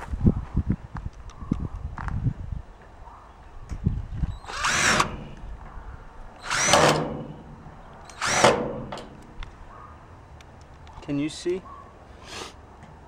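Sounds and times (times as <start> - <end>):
cordless drill driving screw: 4.4 - 5.5, 6.4 - 9.5.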